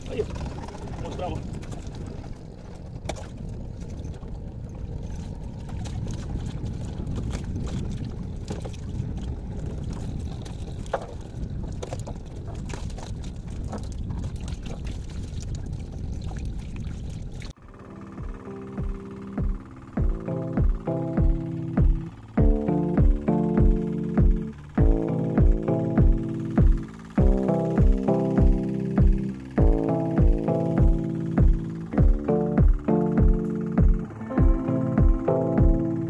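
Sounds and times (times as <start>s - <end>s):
wind and water noise: 0.0s - 36.0s
synthesizer background music: 17.6s - 36.0s.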